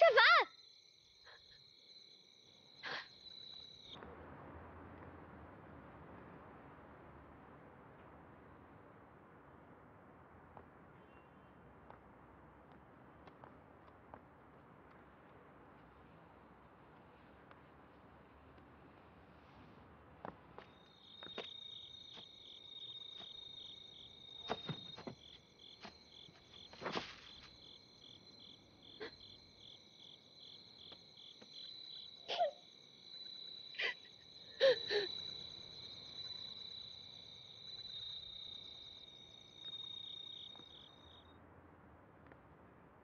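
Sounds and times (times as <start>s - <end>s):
night insects trilling: 0.0s - 4.0s, 20.6s - 41.4s.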